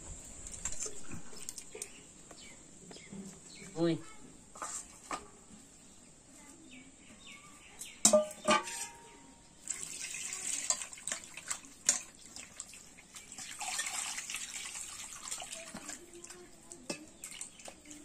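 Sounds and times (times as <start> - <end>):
water splashing and trickling: 0.1 - 2.4, 8.2 - 18.0.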